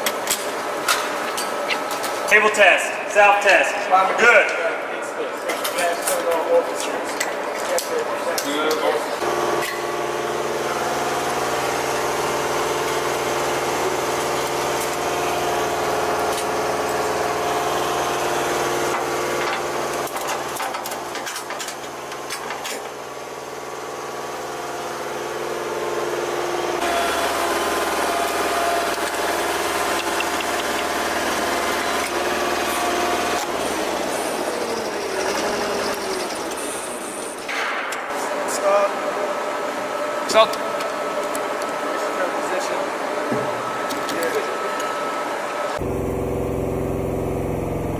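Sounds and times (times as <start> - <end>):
engine idling: 45.8 - 47.9.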